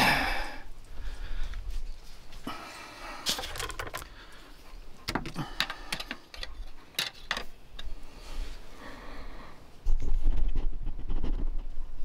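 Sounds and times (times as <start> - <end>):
hard objects clicking and rattling: 3.3 - 4.2, 5.1 - 7.9.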